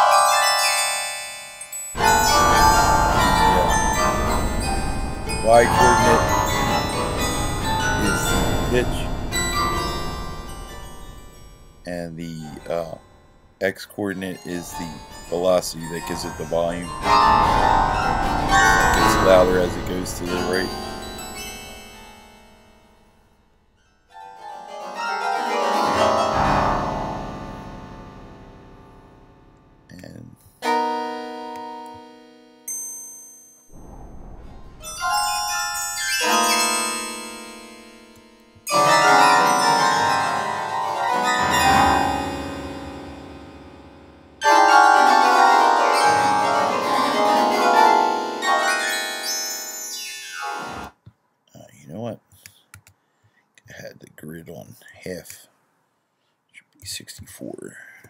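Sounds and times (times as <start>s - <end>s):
synthesized keyboard notes: 0.0s - 23.2s, 24.2s - 32.8s, 33.8s - 51.0s.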